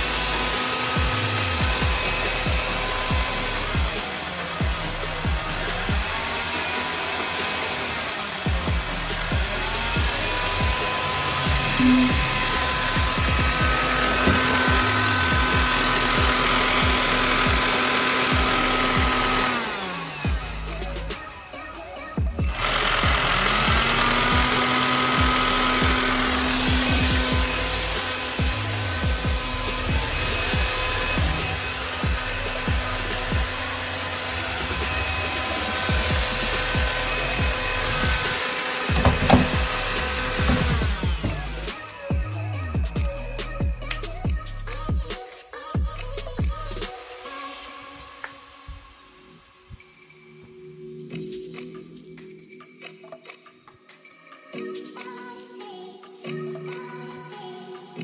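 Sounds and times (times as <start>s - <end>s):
stick vacuum motor whine: 0.0s - 44.1s
music with regular beat: 0.0s - 48.0s
vacuum nozzle bumps: 10.6s - 15.8s, 37.6s - 41.7s.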